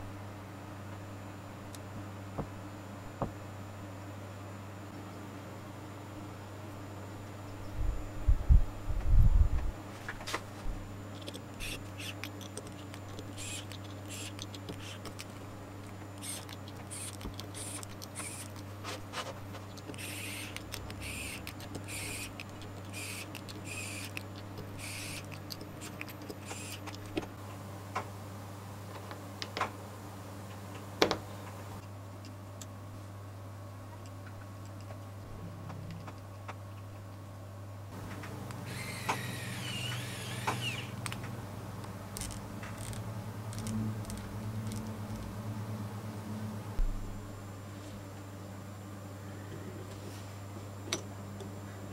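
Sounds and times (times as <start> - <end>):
electric screwdriver running in bursts: 11.6 - 12.2, 13.2 - 15.1, 16.2 - 18.6, 20.0 - 24.2, 24.8 - 26.9, 38.7 - 41.0
low hum: 35.1 - 49.9.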